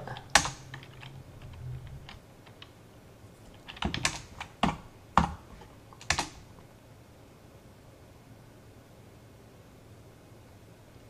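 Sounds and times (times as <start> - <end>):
computer keyboard clicks: 0.0 - 2.7, 3.5 - 5.4, 6.0 - 6.5.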